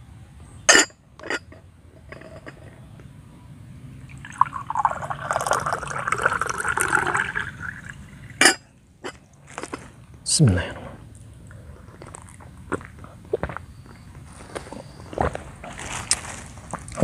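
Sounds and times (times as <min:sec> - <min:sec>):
kettle and glass clinking: 0:00.7 - 0:02.6, 0:04.1 - 0:09.2
water pouring into a glass: 0:04.1 - 0:08.4.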